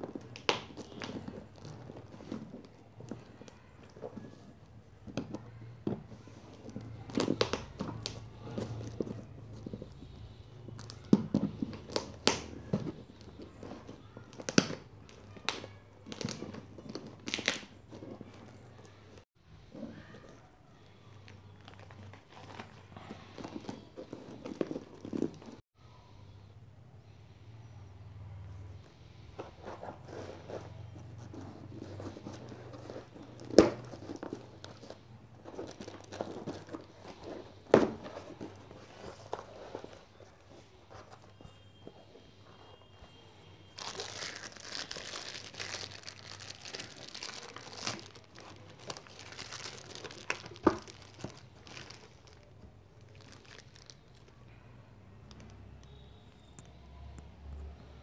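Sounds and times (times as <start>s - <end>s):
cardboard box being opened: 29.5s - 41.5s
packing tape tearing: 43.8s - 52.5s.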